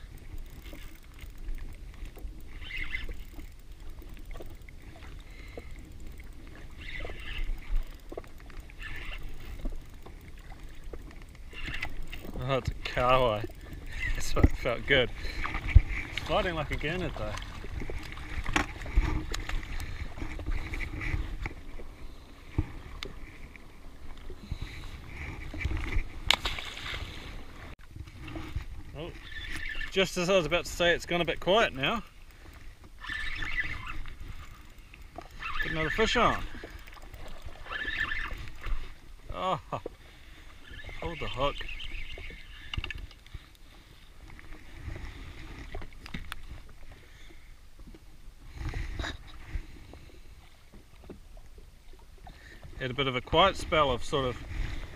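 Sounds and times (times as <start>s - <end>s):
fishing reel clicks and knocks: 0.0s - 10.3s
choppy water: 0.0s - 54.9s
low rumble of wind: 0.0s - 54.9s
small waves lapping against hull: 0.0s - 54.9s.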